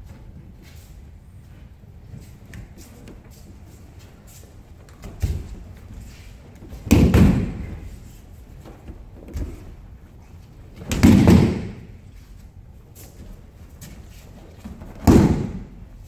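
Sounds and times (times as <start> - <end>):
heavy thuds of bodies on mats: 5.0 - 12.1, 13.3 - 16.0.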